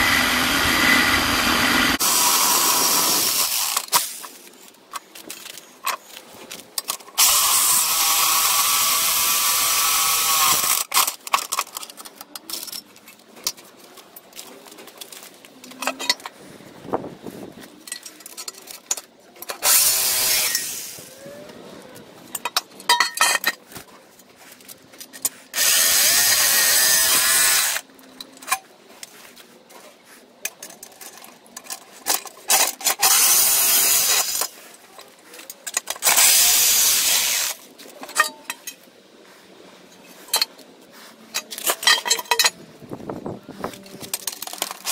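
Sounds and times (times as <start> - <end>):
jigsaw cutting through metal: 0.0 - 4.2, 7.1 - 11.2, 19.6 - 21.1, 25.5 - 27.9, 32.5 - 34.5, 35.9 - 37.6.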